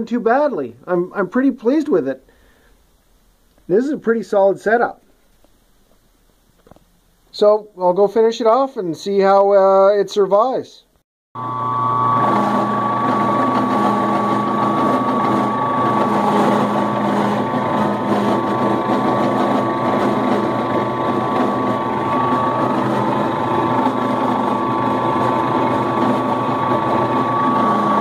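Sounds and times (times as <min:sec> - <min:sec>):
high steady machine tone: 0:11.4 - 0:28.0
milling machine cutting steel: 0:11.4 - 0:28.0.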